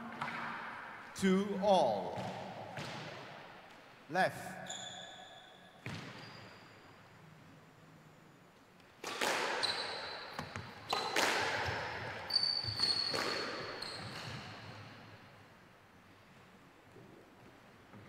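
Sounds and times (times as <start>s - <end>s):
squash ball hits echoing: 2.0s - 3.6s, 9.0s - 14.6s
shoe squeaks on wooden floor: 12.3s - 14.5s.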